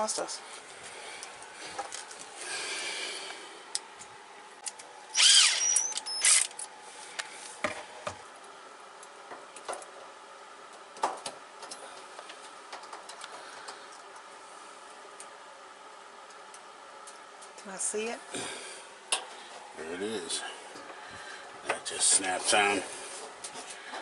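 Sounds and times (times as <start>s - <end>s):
drill motor whirring: 5.1s - 6.5s.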